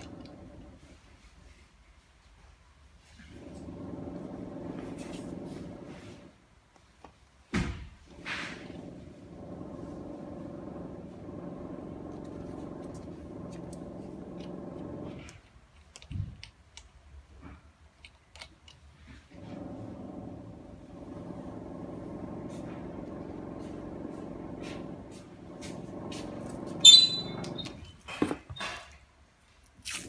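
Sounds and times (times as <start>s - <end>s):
machine motor humming: 8.6s - 15.4s.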